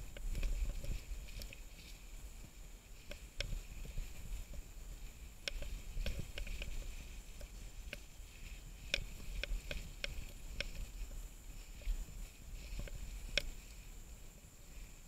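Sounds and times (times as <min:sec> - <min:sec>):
bike clicks and rattles: 0:00.0 - 0:02.0, 0:05.4 - 0:13.8.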